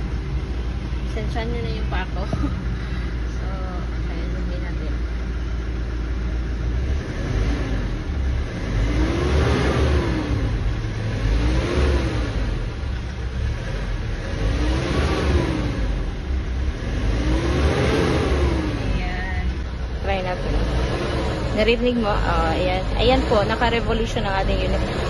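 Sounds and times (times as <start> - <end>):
diesel engine revving: 0.0 - 25.0.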